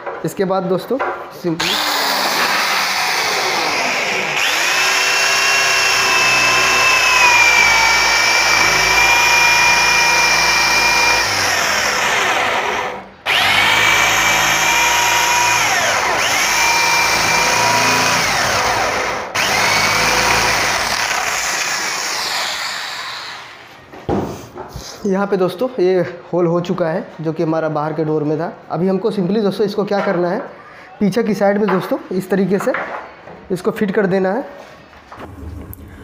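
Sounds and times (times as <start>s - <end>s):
electric drill boring wood: 1.6s - 23.6s.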